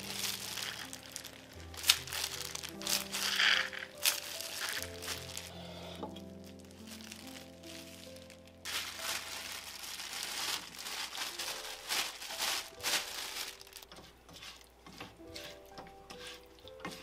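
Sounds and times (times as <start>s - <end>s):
plastic bag crinkling: 0.0s - 14.7s
spatula stirring in a pan: 13.8s - 17.0s.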